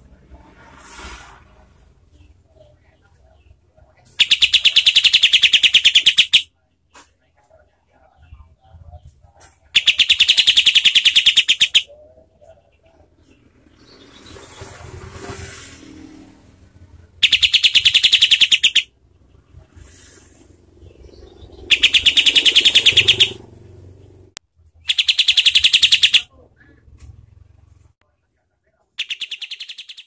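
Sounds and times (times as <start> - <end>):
bird singing harsh rapid notes: 4.1 - 6.5, 9.8 - 12.0, 17.2 - 18.9, 20.8 - 24.1, 24.8 - 26.3, 29.0 - 30.0.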